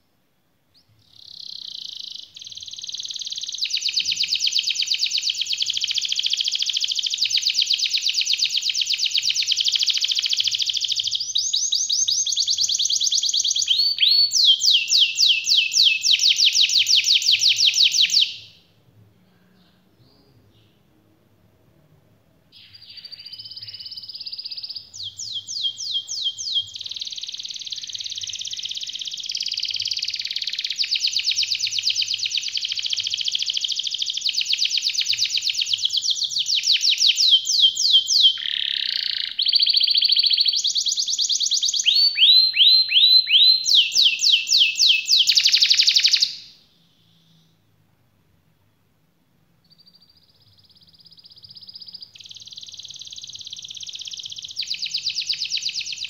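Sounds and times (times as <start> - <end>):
canary singing trills: 0.7 - 18.6, 22.5 - 47.6, 49.6 - 56.0.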